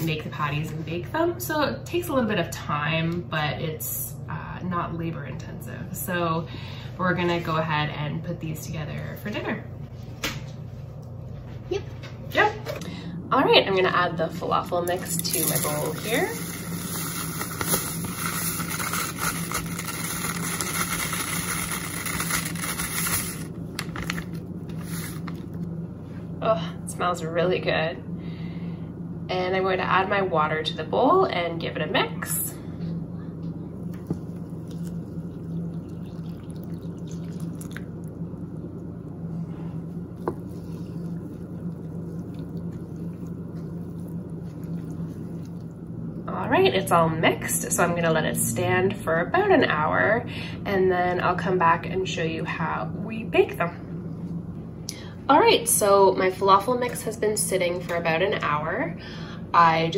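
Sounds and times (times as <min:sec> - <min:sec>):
low hum: 0:00.0 - 0:59.9
dry mix pouring into plastic bowl: 0:15.0 - 0:25.4
wet squelching and sloshing: 0:33.9 - 0:46.2
water poured into bowl: 0:34.0 - 0:38.2.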